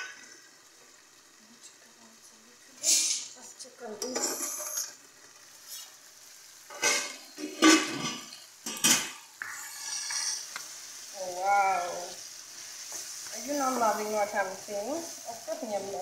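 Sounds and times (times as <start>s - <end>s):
carrots sizzling in pan: 0.0s - 16.0s
wooden spoon scraping pot: 9.4s - 10.6s.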